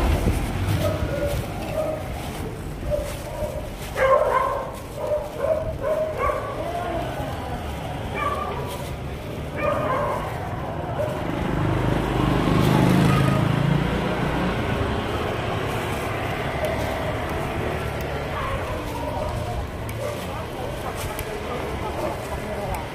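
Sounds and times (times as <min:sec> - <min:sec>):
wind noise: 0:00.0 - 0:11.5
bicycle road noise: 0:00.0 - 0:22.9
motorcycle engine passing: 0:09.7 - 0:19.8.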